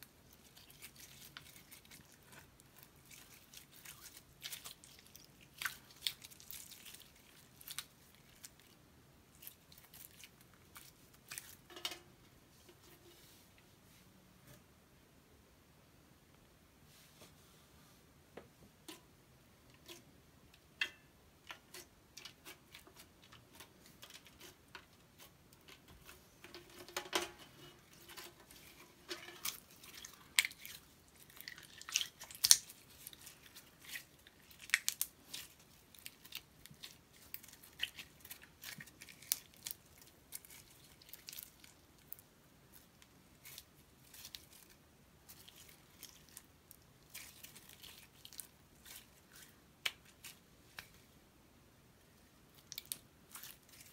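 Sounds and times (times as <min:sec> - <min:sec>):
slime squelching and popping: 0:29.4 - 0:41.9.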